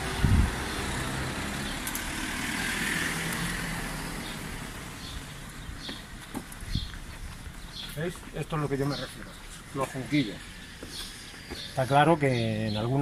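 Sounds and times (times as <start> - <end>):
car passing: 0.0 - 6.6.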